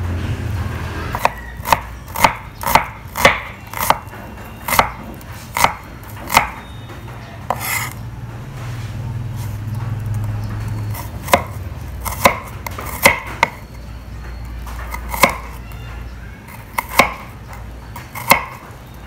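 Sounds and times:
knife chopping on wooden board: 1.2 - 6.6, 7.5 - 8.0, 10.9 - 13.6, 14.6 - 15.6, 16.5 - 18.7.

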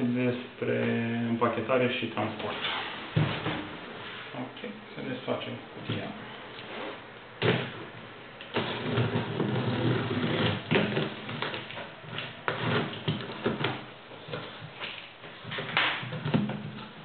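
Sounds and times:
packing tape ripping: 8.4 - 16.2
cardboard flaps scraping: 8.5 - 16.4.

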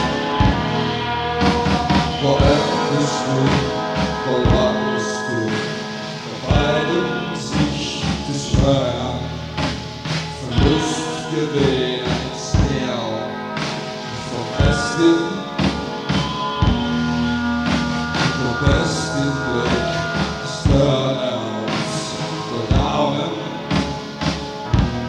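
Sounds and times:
drum hits: 0.0 - 0.8, 1.4 - 2.8, 3.4 - 4.8, 7.6 - 10.9, 11.6 - 12.8, 14.6 - 21.0, 22.7 - 23.0, 23.7 - 25.0
person singing: 0.0 - 16.8, 18.1 - 24.9
live rock band: 0.0 - 25.0.

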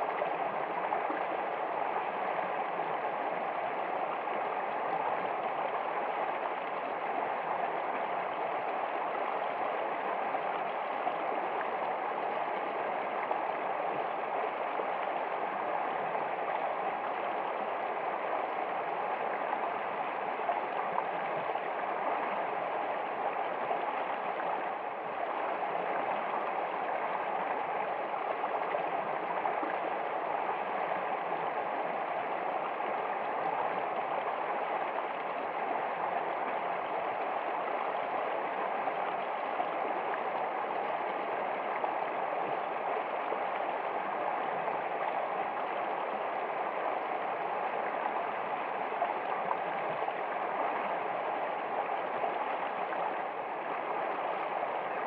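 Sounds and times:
creek rushing over rocks: 0.0 - 55.0.

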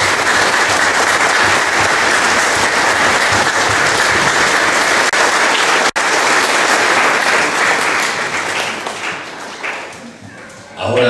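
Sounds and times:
congregation applauding: 0.0 - 11.0.

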